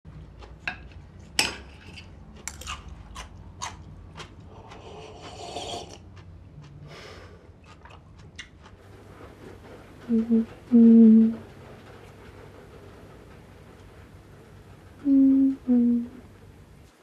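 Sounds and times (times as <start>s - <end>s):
low room hum: 0.1s - 17.0s.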